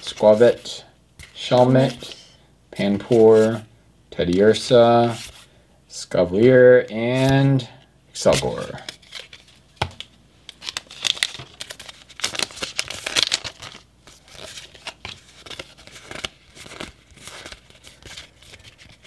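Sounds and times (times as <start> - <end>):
trading cards clicking and rustling: 8.3 - 19.0
foil wrapper crinkling: 10.5 - 19.0.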